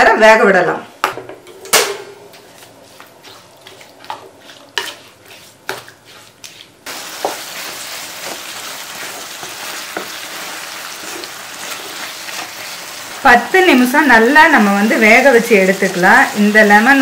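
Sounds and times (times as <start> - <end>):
wooden spatula scraping a pan: 2.3 - 13.2
pickle sizzling: 2.4 - 17.0.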